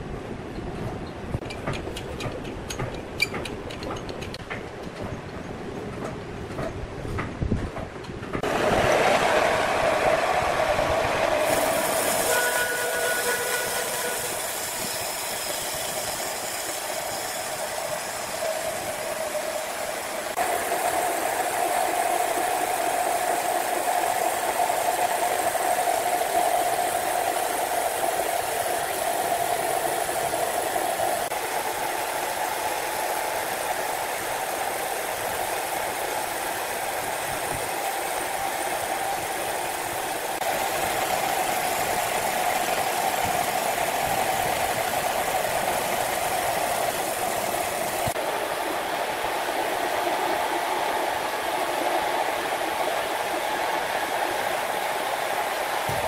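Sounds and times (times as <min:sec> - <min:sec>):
band saw cutting log: 0:11.4 - 0:31.5.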